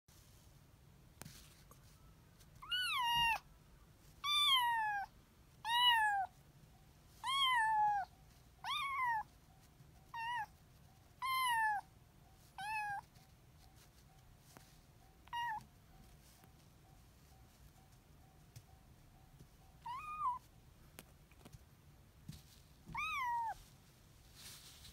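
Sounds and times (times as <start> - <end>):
kitten meowing: 2.6 - 3.4, 4.2 - 6.3, 7.2 - 9.3, 10.1 - 10.6, 11.2 - 11.9, 12.6 - 13.1, 15.2 - 15.6, 19.8 - 20.5, 22.9 - 23.6.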